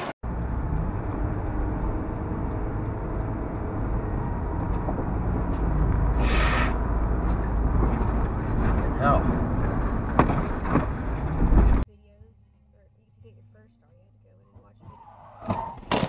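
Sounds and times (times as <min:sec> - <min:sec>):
road and engine rumble: 0:00.0 - 0:16.0.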